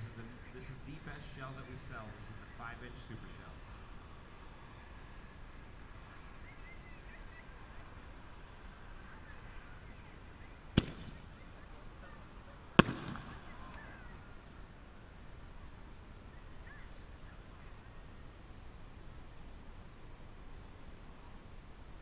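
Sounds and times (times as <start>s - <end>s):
firework launch bang: 10.8s - 11.2s, 12.8s - 13.5s.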